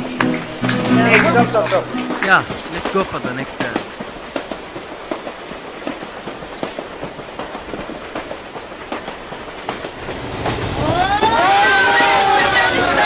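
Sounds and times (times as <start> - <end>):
voices: 0.0 - 4.0, 10.8 - 13.0
train carriage rumble: 0.0 - 13.0.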